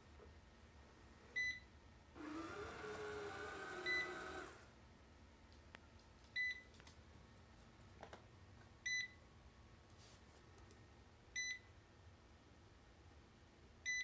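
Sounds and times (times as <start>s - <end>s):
robot vacuum beeping: 2.2s - 4.6s.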